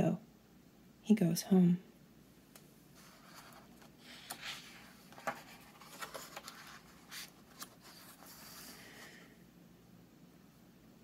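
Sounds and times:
soft paper taps and crinkles: 3.0 - 8.6
paper page rustle: 3.0 - 9.1.

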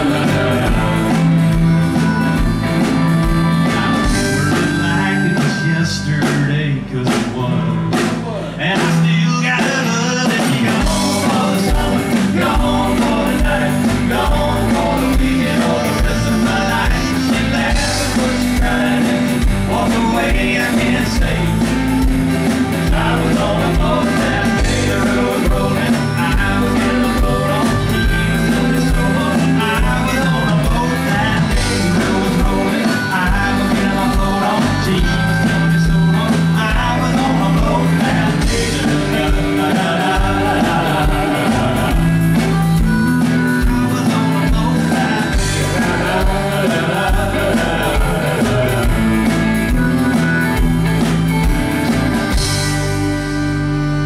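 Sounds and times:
saxophone playing lead: 0.0 - 6.2, 23.8 - 54.0
live country-rock band: 0.0 - 54.0.

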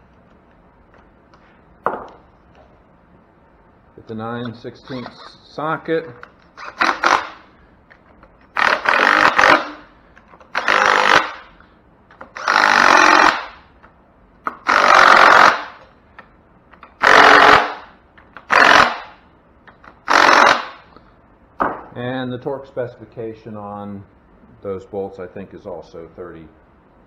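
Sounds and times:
cordless power driver running bolts: 6.6 - 7.4, 8.5 - 9.8, 10.4 - 11.4, 12.3 - 13.5, 14.6 - 15.8, 17.0 - 17.8, 18.4 - 19.0, 20.0 - 20.7.

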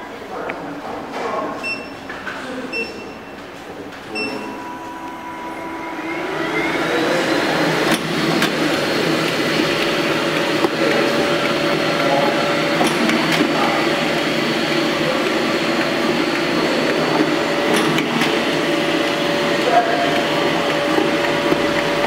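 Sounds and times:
paper creasing machine motors whining: 3.5 - 22.0
sharp machine clicks: 7.8 - 22.0.

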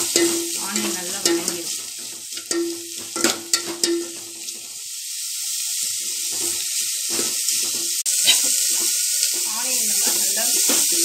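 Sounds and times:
onions sizzling in hot oil: 0.0 - 11.0
spoon clinking against pot: 0.1 - 1.8, 2.4 - 4.3.

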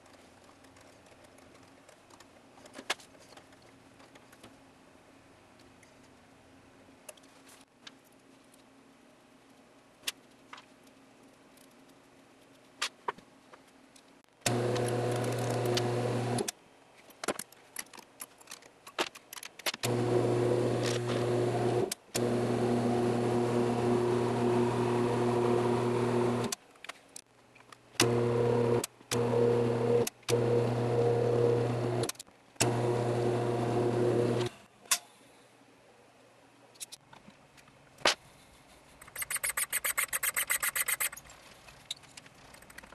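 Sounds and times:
lathe motor humming: 14.5 - 16.5, 19.8 - 26.5, 28.0 - 34.5.

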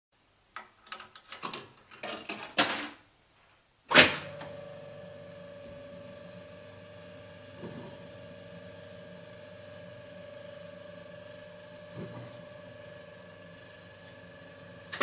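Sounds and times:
machine hum: 3.9 - 15.0.

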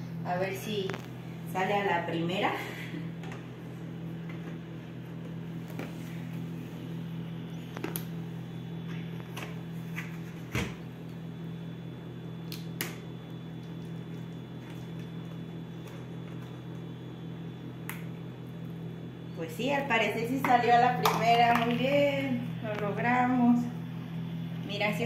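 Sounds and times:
low hum: 0.0 - 25.0.

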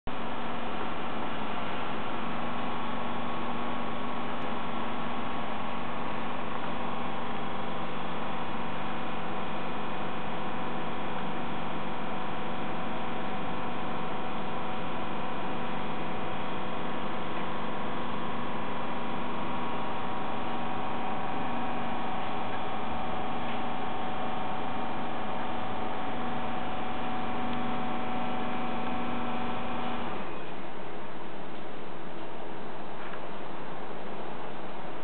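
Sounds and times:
train electrical hum and whine: 0.1 - 35.0.

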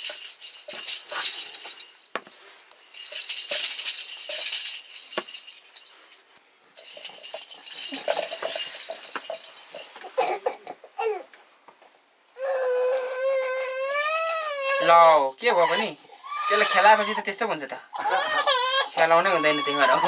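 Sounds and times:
small bell jingling: 0.0 - 10.4.

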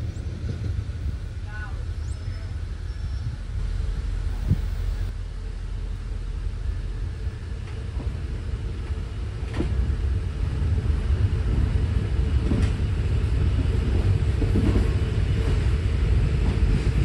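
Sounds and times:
train rumbling on track: 0.0 - 17.0.

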